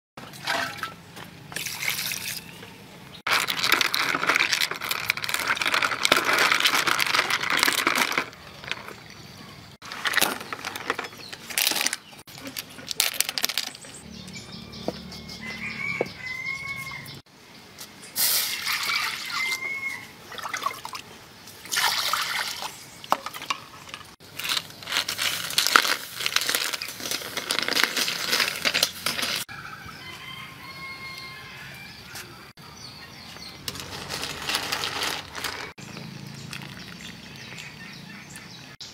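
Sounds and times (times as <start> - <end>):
chickens calling: 13.9 - 17.3, 29.4 - 38.8
water splashing: 20.3 - 23.5.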